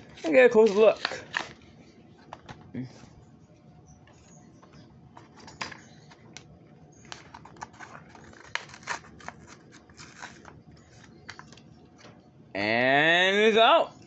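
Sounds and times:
plastic packaging clicks and crackles: 7.1s - 11.7s.

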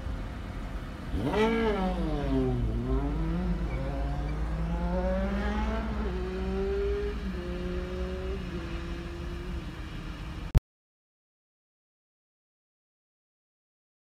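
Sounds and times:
car engine revving: 1.0s - 10.5s.

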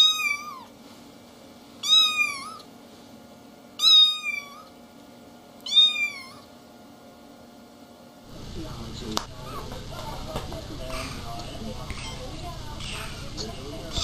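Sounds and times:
kitten meowing: 0.0s - 0.7s, 1.8s - 2.7s, 3.8s - 4.7s, 5.6s - 6.5s.

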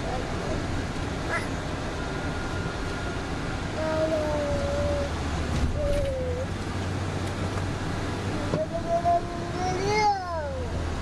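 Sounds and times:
vehicle engine and road rumble: 0.0s - 11.0s.

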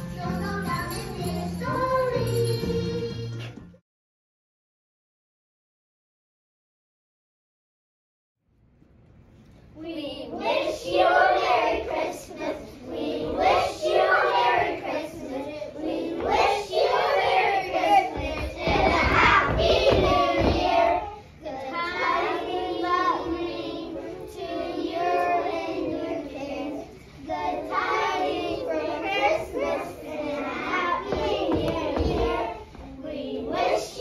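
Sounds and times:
children singing: 9.9s - 34.0s.

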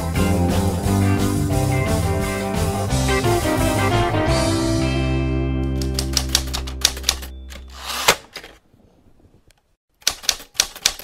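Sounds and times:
rock guitar chord: 0.1s - 5.9s
typewriter keystrokes clacking: 5.8s - 7.6s, 10.0s - 11.0s.

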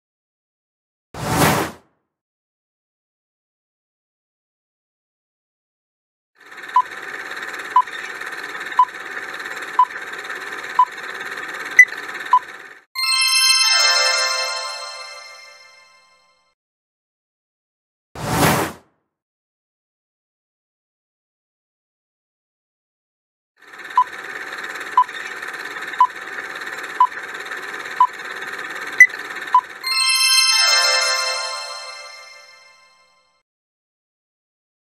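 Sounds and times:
timer ticking: 6.7s - 7.0s, 7.6s - 12.5s, 24.8s - 29.8s
countdown timer ticks: 7.7s - 7.9s, 26.0s - 26.2s
bright ringing chime: 13.0s - 16.3s, 29.8s - 33.2s.

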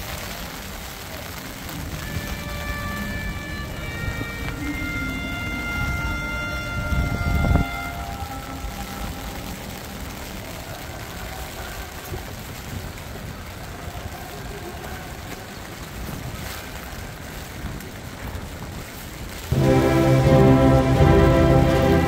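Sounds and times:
steady hiss of rain: 0.0s - 22.0s
wind gusts buffeting microphone: 5.2s - 19.6s.

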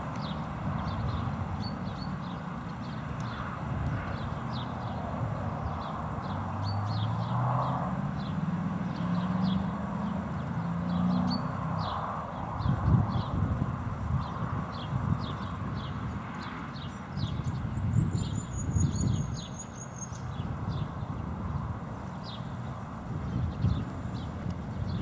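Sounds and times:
small birds chirping: 14.2s - 21.2s, 22.0s - 25.0s.

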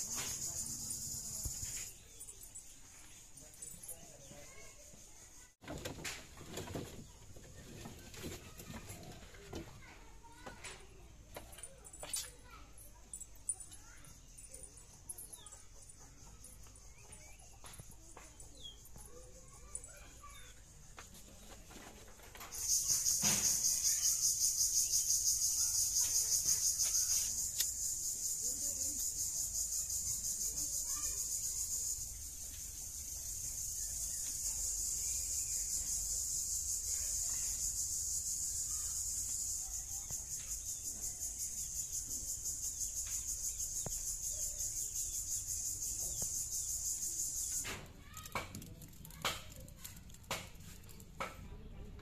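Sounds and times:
insect chorus pulsing: 0.0s - 5.6s, 22.4s - 50.0s.

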